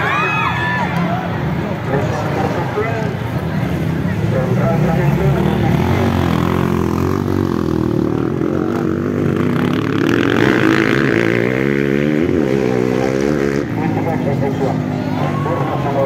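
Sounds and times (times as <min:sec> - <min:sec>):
dirt bike engine revving: 0:03.8 - 0:16.0.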